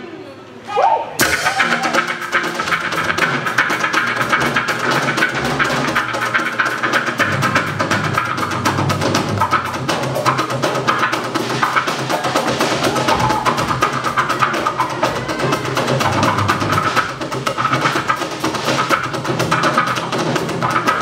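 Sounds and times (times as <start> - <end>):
drum kit fast rhythm: 1.2 - 21.0.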